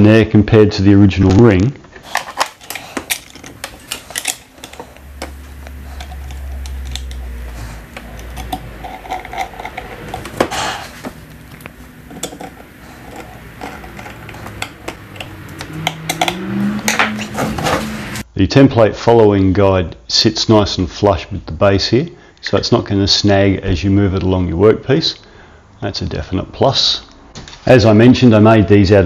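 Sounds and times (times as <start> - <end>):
low hum: 2.1 - 18.2.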